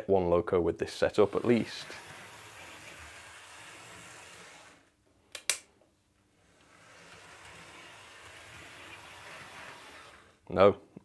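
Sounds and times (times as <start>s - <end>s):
model train motor whirr: 1.0s - 4.9s, 6.4s - 10.4s
sharp clicks: 5.3s - 5.7s.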